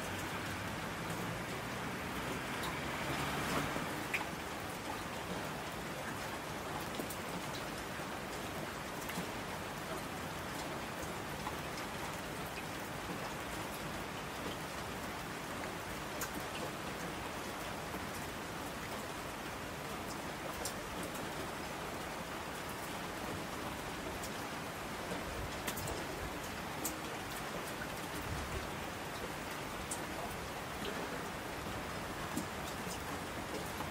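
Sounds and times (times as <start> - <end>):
steady rain: 0.0 - 33.9
raindrop ticks: 2.2 - 2.8, 3.4 - 5.4, 16.1 - 17.1, 20.0 - 21.3, 24.1 - 24.4, 25.0 - 31.4, 32.2 - 33.9.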